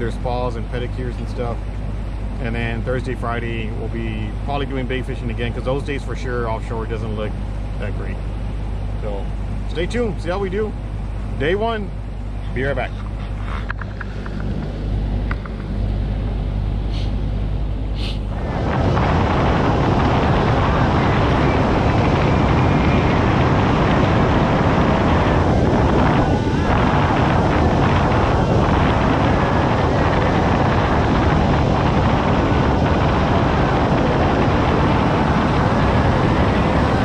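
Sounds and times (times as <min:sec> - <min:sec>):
outboard motor hum: 0:00.0 - 0:37.0
wind rushing over microphone: 0:00.0 - 0:37.0
water rushing past hull: 0:18.3 - 0:37.0.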